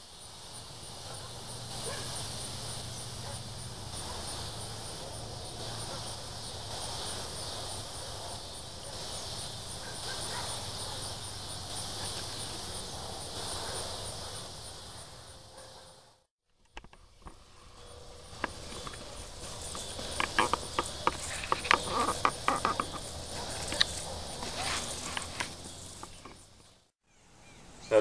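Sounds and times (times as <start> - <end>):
insect chorus with high chirp: 0.0 - 28.0
dogs barking: 1.0 - 2.3, 3.0 - 6.9, 7.7 - 11.2, 15.4 - 16.2, 17.8 - 26.4.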